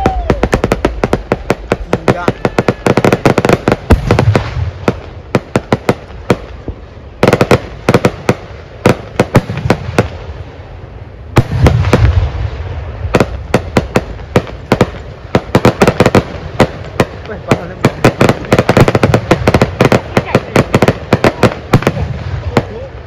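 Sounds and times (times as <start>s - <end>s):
firecrackers cracking: 0.0s - 10.4s, 11.2s - 23.0s
single firecracker bangs: 11.4s - 12.4s.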